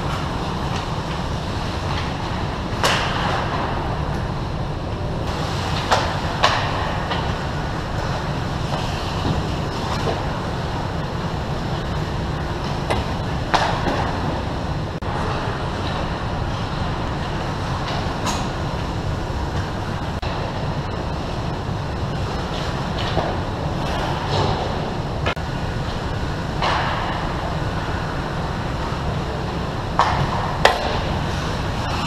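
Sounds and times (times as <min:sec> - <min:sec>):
steady low rumble: 0:00.0 - 0:32.0
sticks and puck clattering: 0:05.7 - 0:07.4, 0:12.6 - 0:14.4, 0:29.9 - 0:32.0
skates scraping ice: 0:08.0 - 0:10.3.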